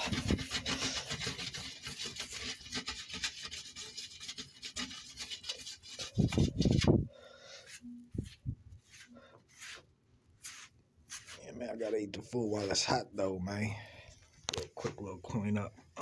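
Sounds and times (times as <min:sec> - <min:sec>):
scraping food off a pan: 0:00.0 - 0:08.0.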